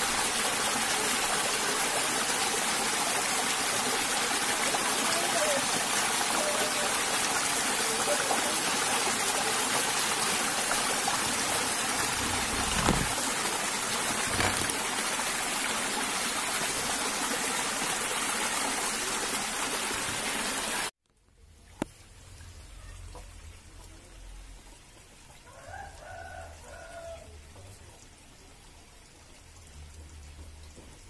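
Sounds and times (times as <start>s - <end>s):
stream rushing and splashing: 0.0s - 20.9s.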